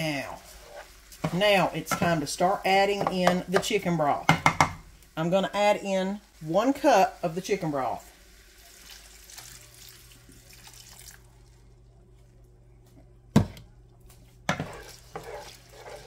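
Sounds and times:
broth pouring into pan: 0:06.0 - 0:11.7.

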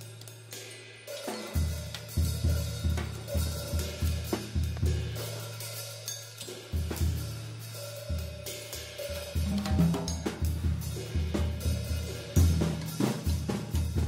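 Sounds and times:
cymbals and hi-hat: 0:00.0 - 0:14.0
bass drum and tom strokes: 0:09.2 - 0:12.8
low drum ringing: 0:09.3 - 0:10.7.

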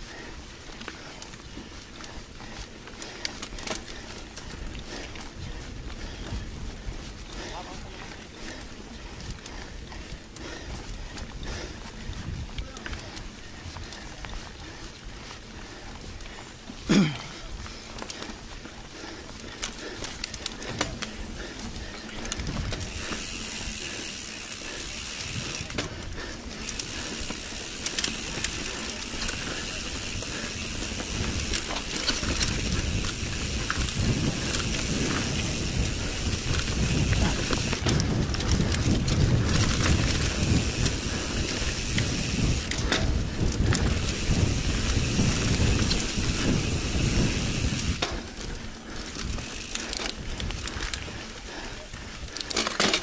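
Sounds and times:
tyres rumbling on dirt trail: 0:00.0 - 0:53.0
bike freehub ratchet clicking: 0:02.0 - 0:06.6, 0:19.5 - 0:51.3.

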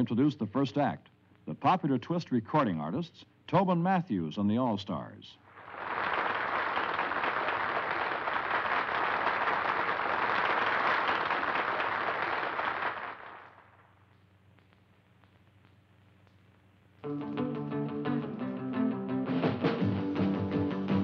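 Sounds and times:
audience applauding: 0:05.5 - 0:13.6
surf rock band on electric guitars: 0:17.0 - 0:21.0.

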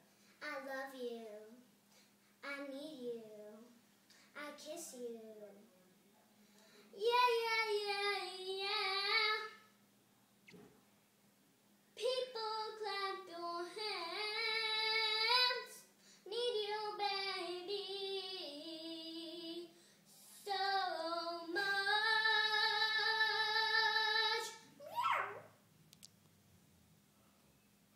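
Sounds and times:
girl singing: 0:00.4 - 0:01.7, 0:02.4 - 0:05.7, 0:06.9 - 0:09.7, 0:12.0 - 0:24.7.

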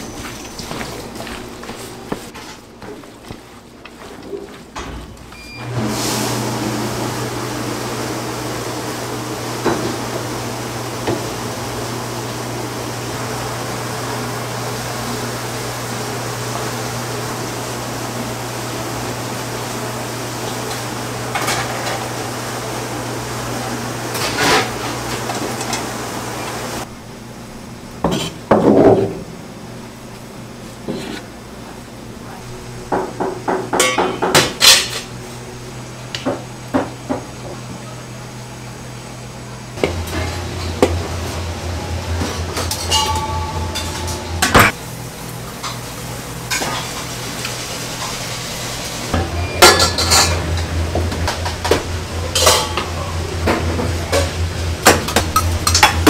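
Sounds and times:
steady hum: 0:35.2 - 0:46.6
steel bowls and utensils clinking: 0:42.0 - 0:44.8, 0:49.2 - 0:51.6, 0:52.2 - 0:54.4
metal clanks: 0:42.5 - 0:44.8.

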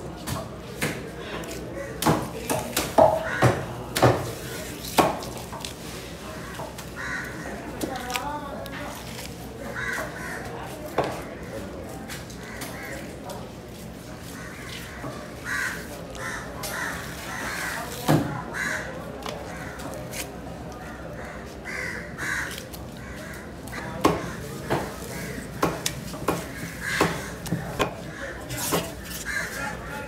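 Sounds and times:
crows cawing: 0:03.2 - 0:03.6, 0:06.4 - 0:07.7, 0:09.7 - 0:10.5, 0:12.4 - 0:13.2, 0:14.3 - 0:17.9, 0:18.5 - 0:19.9, 0:20.8 - 0:28.4, 0:29.1 - 0:30.0.

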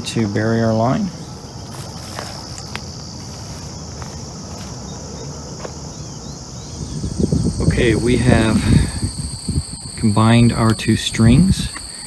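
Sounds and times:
insects chirring: 0:00.0 - 0:12.0
footsteps crunching on gravel: 0:01.6 - 0:05.0.

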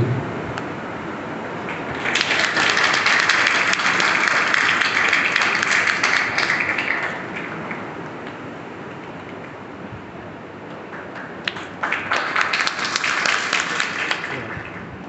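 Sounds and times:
audience applauding: 0:01.5 - 0:08.4, 0:10.7 - 0:15.0.

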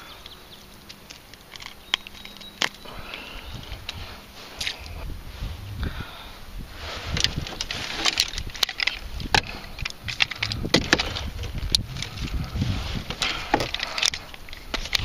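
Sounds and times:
fishing gear clicking and knocking: 0:00.2 - 0:04.0, 0:07.1 - 0:15.0
low rumble: 0:02.9 - 0:07.8.

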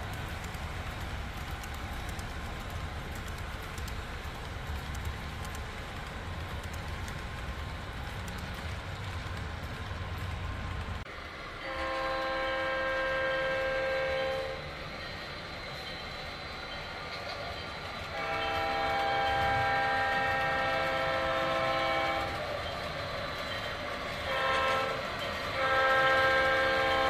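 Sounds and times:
wheels on track: 0:00.0 - 0:27.0
model locomotive engine rumble: 0:10.8 - 0:27.0.

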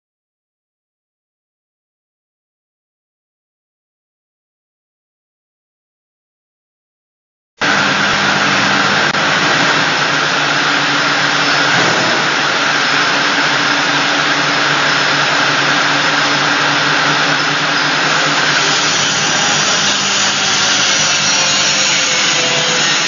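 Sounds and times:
low motor hum: 0:07.6 - 0:21.2
bottle washing machinery whirring: 0:07.6 - 0:23.0.

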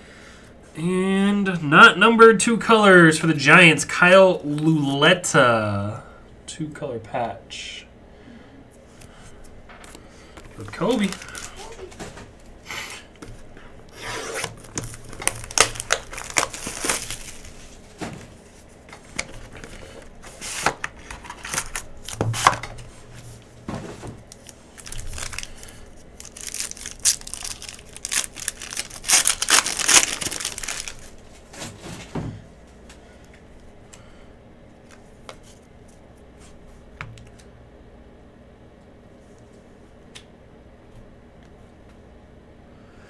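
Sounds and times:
wrapping torn and crinkled: 0:10.5 - 0:12.0, 0:13.9 - 0:17.9, 0:19.2 - 0:22.2, 0:24.3 - 0:31.5.

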